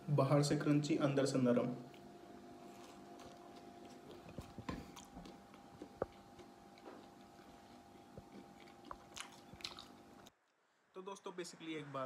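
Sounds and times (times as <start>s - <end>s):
crunchy chewing: 1.8s - 10.4s.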